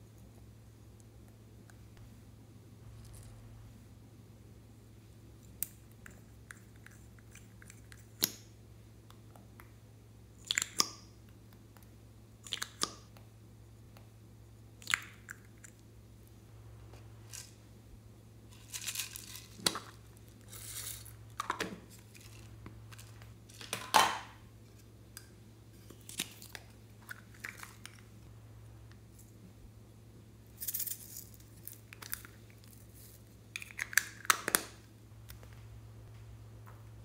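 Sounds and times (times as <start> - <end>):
sprinkles rustling: 18.5 - 23.7.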